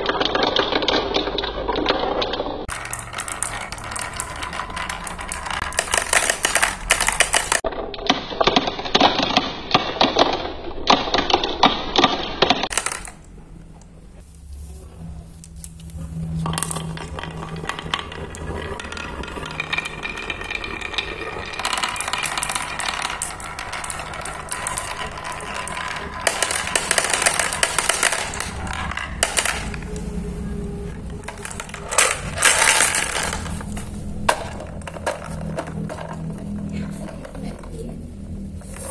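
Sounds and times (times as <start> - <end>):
balls clattering into plastic bowl: 0.0 - 13.9, 15.5 - 38.9
balls clattering down marble run: 0.0 - 14.0, 16.3 - 38.9.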